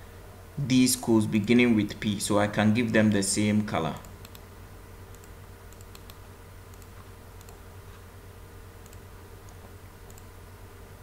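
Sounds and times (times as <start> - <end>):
low electrical hum: 0.0 - 11.0
computer mouse clicks: 4.0 - 4.4, 5.1 - 8.0, 8.8 - 10.3.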